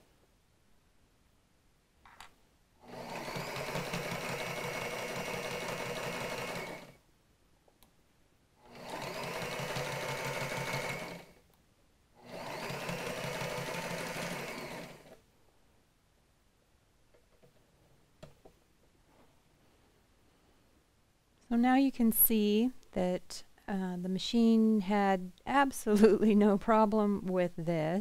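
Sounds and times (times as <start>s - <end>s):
sewing machine stitching: 2.8s - 7.0s, 8.6s - 11.4s, 12.2s - 15.2s.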